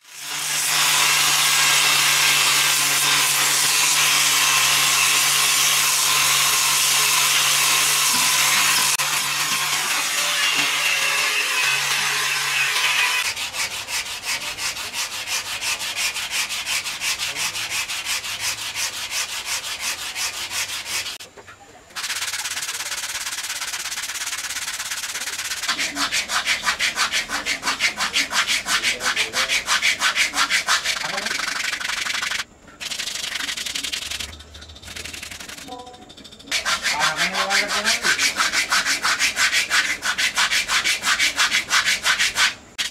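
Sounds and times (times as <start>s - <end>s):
sandpaper rubbing on wood: 0.7s - 21.2s, 22.0s - 35.7s, 36.5s - 42.9s
power sander running: 6.1s - 10.8s.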